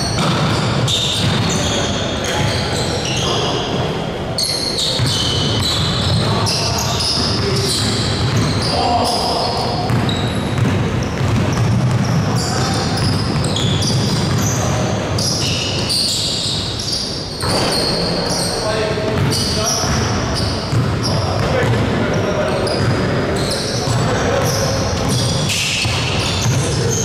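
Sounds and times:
basketball bouncing on wooden court: 0:00.0 - 0:02.6, 0:04.8 - 0:15.9, 0:19.1 - 0:27.0
shoe squeaks: 0:00.0 - 0:27.0
players' voices: 0:01.1 - 0:27.0.

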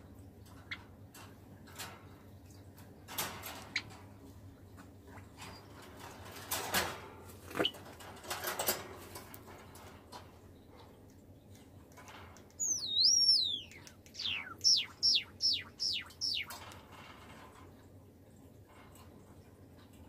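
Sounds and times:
wire birdcage clinking and rattling: 0:00.4 - 0:04.3, 0:05.1 - 0:10.4, 0:11.9 - 0:12.5, 0:15.5 - 0:17.9
bird pips: 0:12.5 - 0:16.8.

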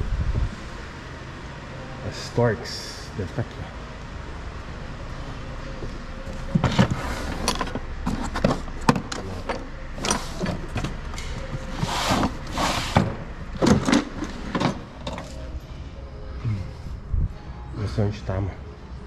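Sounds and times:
tools and metal parts clattering: 0:06.2 - 0:15.5
metal scraping slides: 0:06.6 - 0:08.8, 0:11.6 - 0:13.1.

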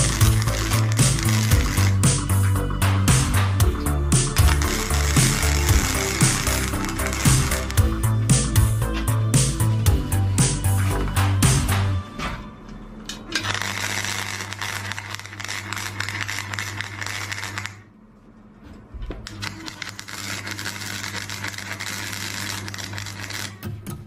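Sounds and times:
welding arc crackling: 0:00.0 - 0:08.8, 0:13.4 - 0:17.9, 0:19.2 - 0:23.6
background music: 0:00.0 - 0:16.0, 0:21.2 - 0:24.0.

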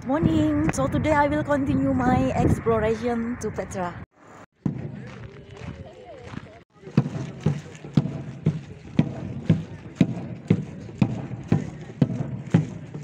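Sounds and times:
marching drum beating: 0:04.6 - 0:13.0.

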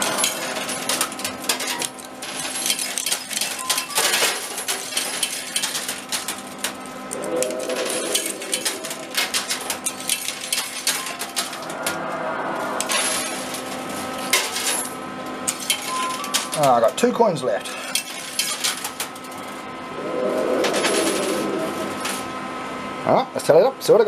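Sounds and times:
metal tokens clinking on coins: 0:00.0 - 0:11.7, 0:12.8 - 0:17.1
machine hum: 0:00.0 - 0:16.6, 0:18.5 - 0:23.0.

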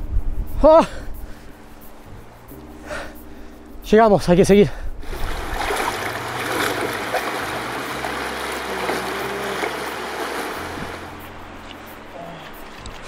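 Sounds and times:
water splashing and rushing: 0:05.0 - 0:13.0.

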